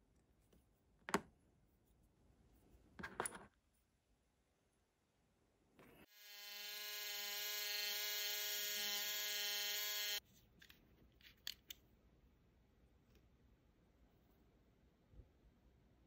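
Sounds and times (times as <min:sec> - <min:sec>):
electric mini drill whining: 0:06.1 - 0:10.2.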